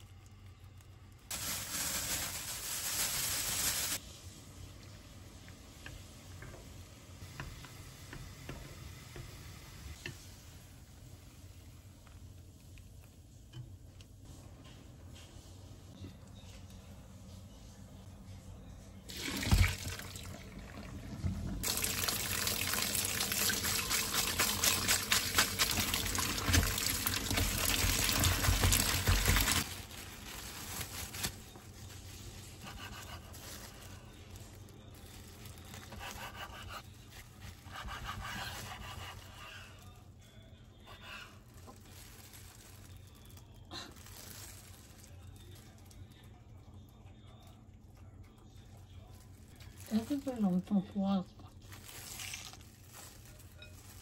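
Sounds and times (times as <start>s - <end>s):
tap running water into sink: 19.1s - 20.2s, 21.2s - 29.5s.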